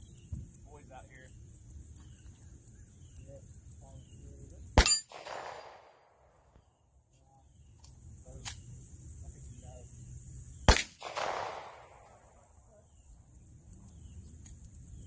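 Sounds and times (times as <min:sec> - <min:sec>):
gunshots with echo: 0:04.8 - 0:06.2, 0:10.7 - 0:12.4.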